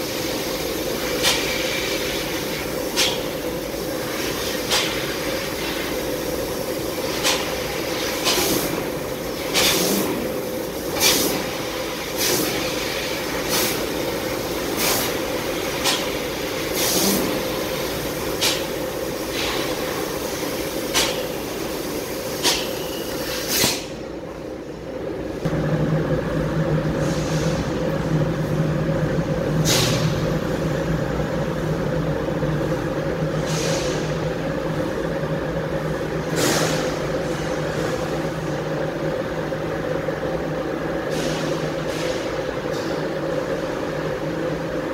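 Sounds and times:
laser cutter machine hum: 24.0s - 44.9s.

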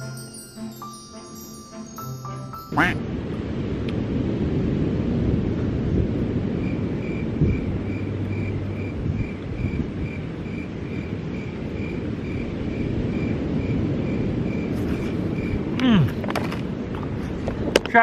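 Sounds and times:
steady low rumble: 2.9s - 17.7s
insect chirping: 6.5s - 15.8s.

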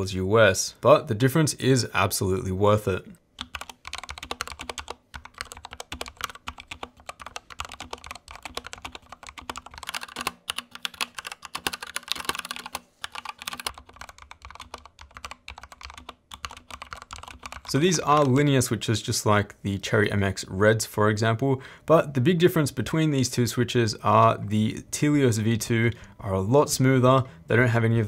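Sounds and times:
fast typing on mechanical keyboard: 3.4s - 18.4s.

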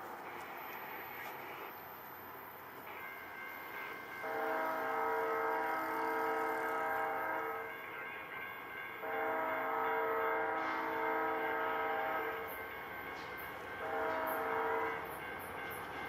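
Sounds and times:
locomotive air horn blasts: 4.2s - 7.7s, 9.0s - 12.5s, 13.8s - 15.0s.

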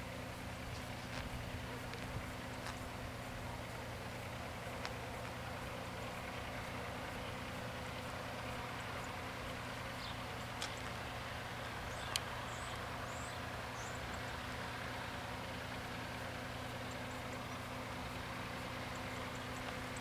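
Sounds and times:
outdoor background hiss: 0.0s - 20.0s.

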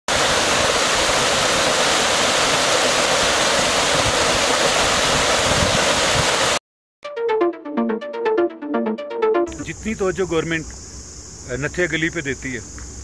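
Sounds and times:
waterfall rushing over rocks: 0.1s - 6.6s.

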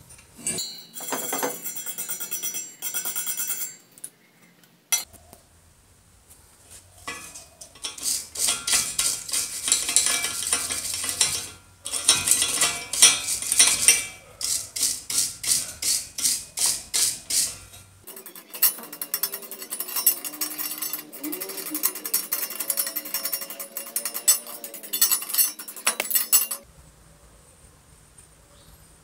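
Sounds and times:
wire brush scrubbing metal: 6.7s - 26.7s.

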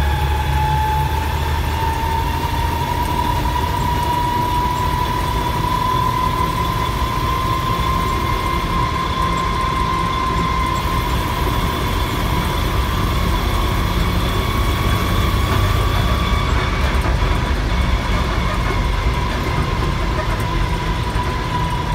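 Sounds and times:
engine low rumble: 0.0s - 21.9s
high whine: 0.0s - 21.9s.

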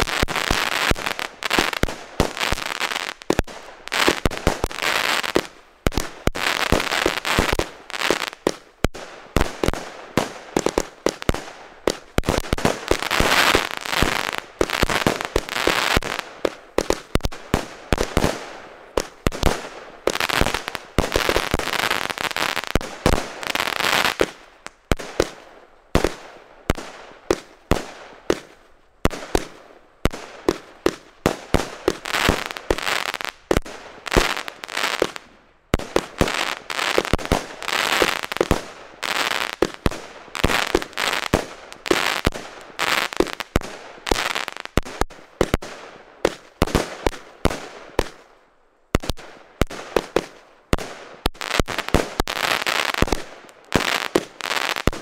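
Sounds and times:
firework cake firing: 0.0s - 25.4s.

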